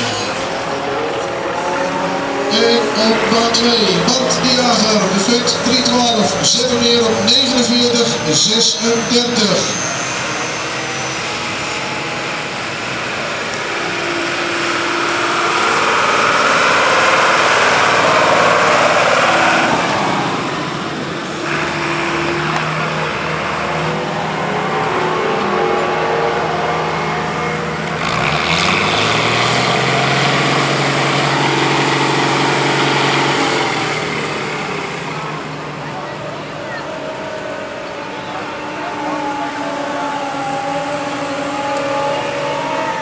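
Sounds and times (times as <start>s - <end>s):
tractor diesel engine driving past: 0.0s - 43.0s.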